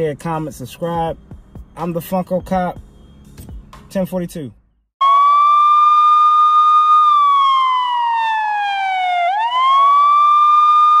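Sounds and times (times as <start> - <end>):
wailing siren: 5.0 - 11.0.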